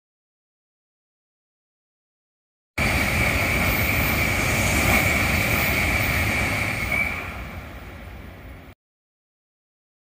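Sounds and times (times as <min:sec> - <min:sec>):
high-speed train passing: 0:02.8 - 0:08.8.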